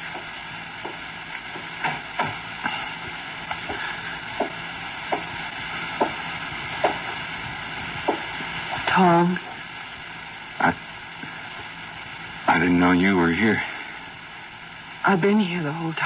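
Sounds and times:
footsteps on creaking floorboards: 0.0s - 7.2s, 8.0s - 8.8s
recording hiss: 0.0s - 16.0s.

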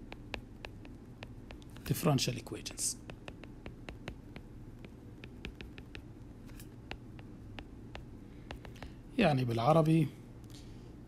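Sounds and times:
stylus tapping on glass screen: 0.0s - 2.0s, 3.0s - 6.1s, 6.8s - 9.0s.

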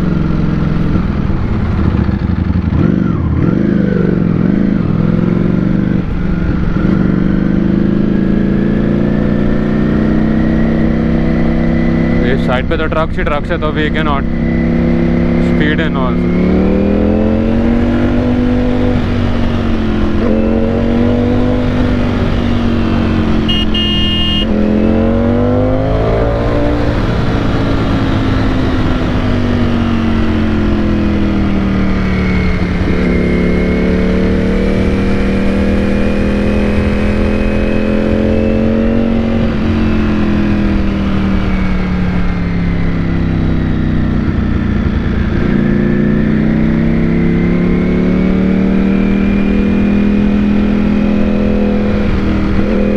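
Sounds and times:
motorcycle engine revving: 0.0s - 52.9s
horn: 23.5s - 24.5s.

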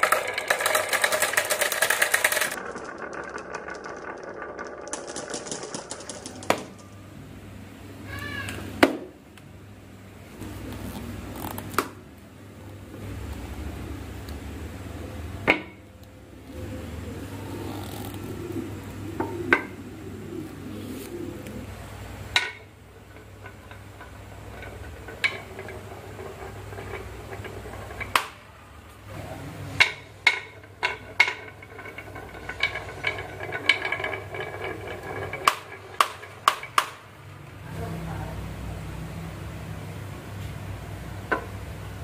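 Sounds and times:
wooden blocks knocking: 0.0s - 7.0s, 15.4s - 15.9s, 18.2s - 21.6s, 22.3s - 29.1s, 29.7s - 37.4s.

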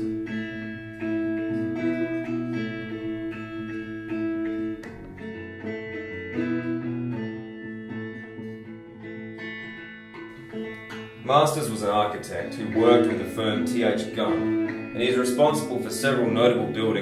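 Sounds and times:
plucked guitar music: 0.0s - 17.0s.

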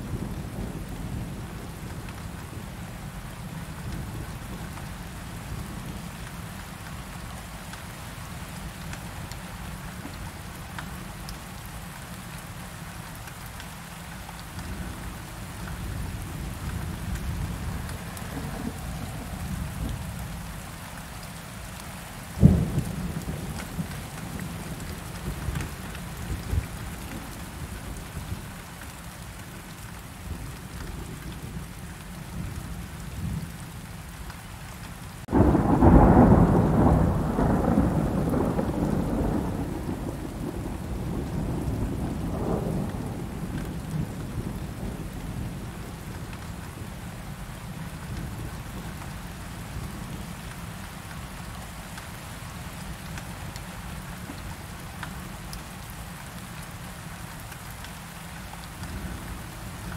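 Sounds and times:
steady rain: 0.0s - 59.9s
sharp thunderclap: 35.3s - 44.2s
rolling thunder: 35.3s - 46.0s.

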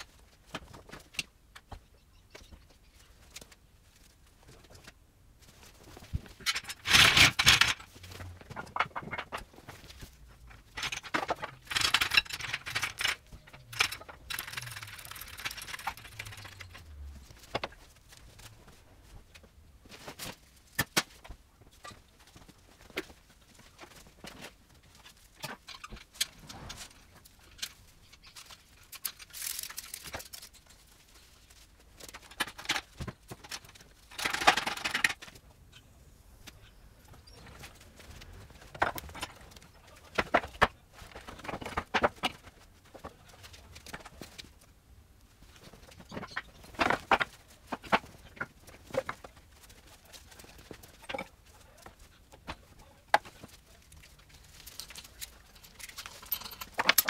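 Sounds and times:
metal tools clinking and scraping: 53.2s - 57.0s.

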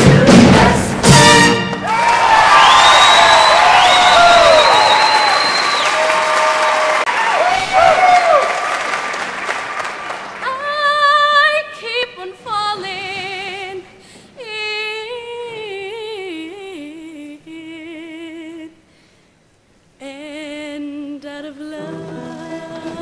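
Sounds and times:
applause: 1.8s - 10.6s.

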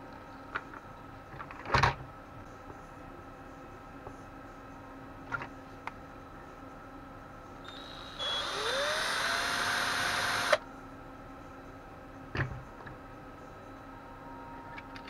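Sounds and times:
cordless drill whining: 7.7s - 10.6s.

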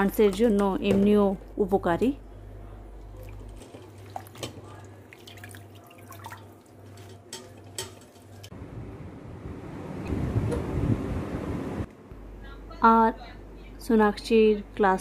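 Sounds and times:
water splashing and dripping: 3.2s - 7.1s.

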